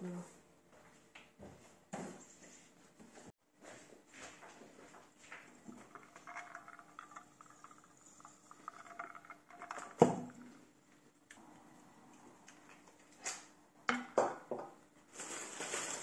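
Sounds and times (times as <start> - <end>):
ice cubes clinking in steel tumbler: 5.4 - 10.8.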